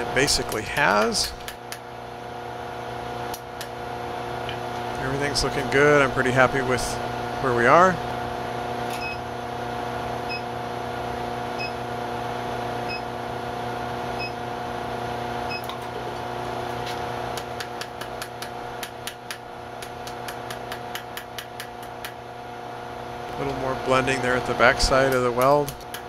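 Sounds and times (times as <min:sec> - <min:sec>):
induction heater humming: 0:00.0 - 0:26.0
hammer tapping on hot metal: 0:17.4 - 0:22.2.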